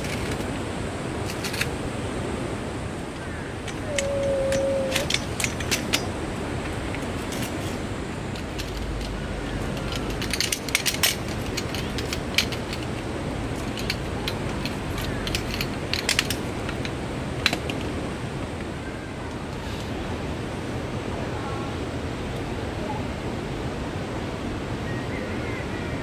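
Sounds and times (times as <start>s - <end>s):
steady rushing noise: 0.0s - 24.8s
sharp clicks and light clinks: 3.6s - 7.7s, 8.3s - 18.0s.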